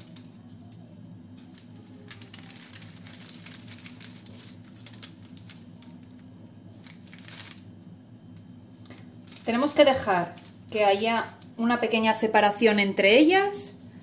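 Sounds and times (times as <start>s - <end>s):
steady low hum: 0.0s - 14.0s
paper rustling: 1.4s - 7.7s, 8.8s - 11.5s.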